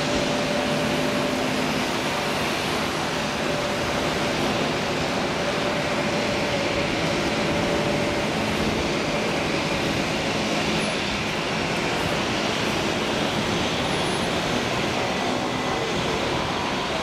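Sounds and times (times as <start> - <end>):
faint jet engine whine: 0.0 - 17.0
jet engines rumbling: 0.0 - 17.0.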